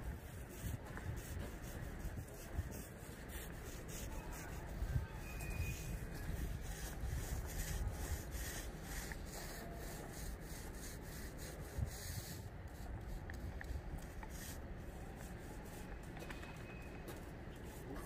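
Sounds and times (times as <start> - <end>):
hand roller rubbing over fiberglass: 0.2 - 13.0.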